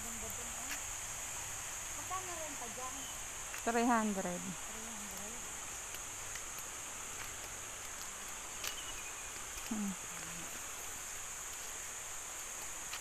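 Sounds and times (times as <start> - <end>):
faint ticks: 5.0 - 13.0.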